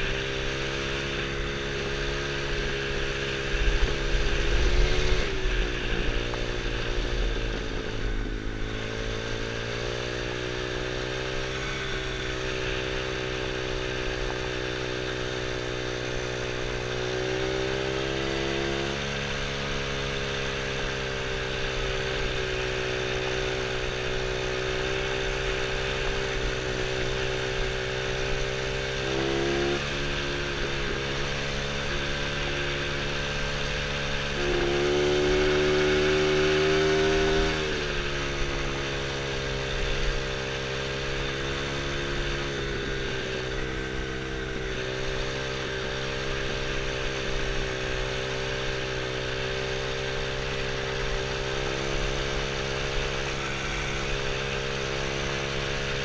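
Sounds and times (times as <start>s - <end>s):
quad bike engine revving: 0.0s - 56.0s.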